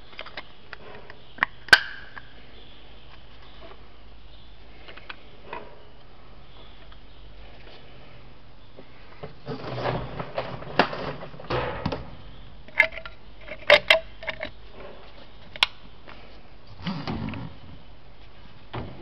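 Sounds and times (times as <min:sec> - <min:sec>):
handling rustling and knocking: 0:09.2 - 0:15.7.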